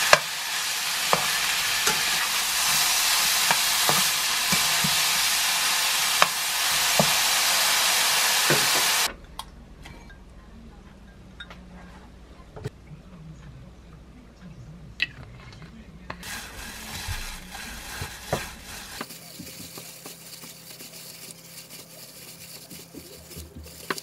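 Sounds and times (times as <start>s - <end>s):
plastic glove rustling: 16.2s - 24.0s.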